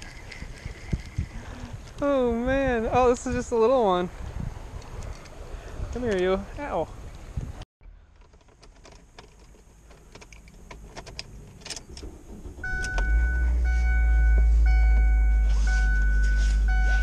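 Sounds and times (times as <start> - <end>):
car engine idling: 9.6 - 17.0
dashboard warning chime beeping: 12.6 - 17.0.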